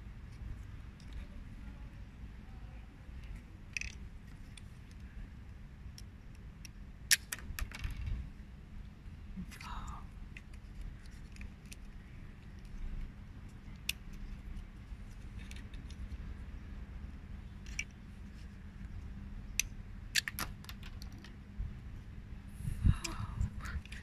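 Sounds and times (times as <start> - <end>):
faint hum: 0.0 - 24.0
low background rumble: 0.0 - 24.0
wooden parts clicking: 3.2 - 5.2, 5.8 - 8.3, 9.5 - 16.4, 17.6 - 21.4.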